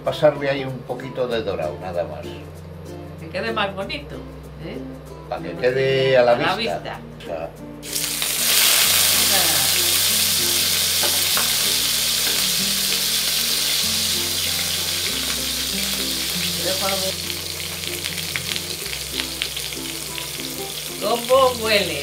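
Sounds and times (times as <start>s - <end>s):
fish sizzling in oil: 7.8s - 22.0s
utensil clicking on pan: 10.7s - 14.1s.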